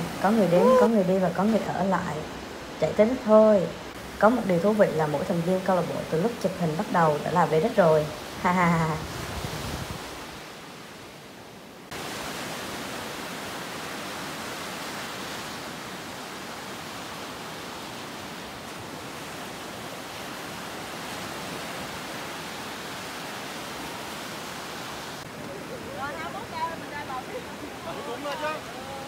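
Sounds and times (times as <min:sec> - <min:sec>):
ocean surf hissing: 0:00.0 - 0:05.9.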